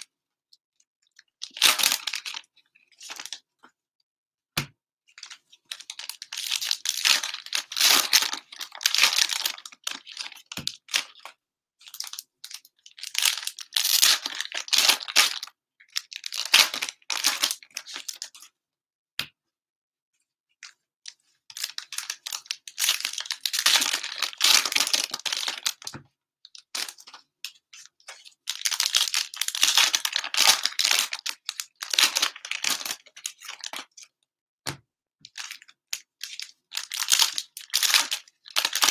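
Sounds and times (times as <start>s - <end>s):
plastic wrappers tearing and crinkling: 21.6s - 25.9s, 28.5s - 33.8s, 36.3s - 38.9s.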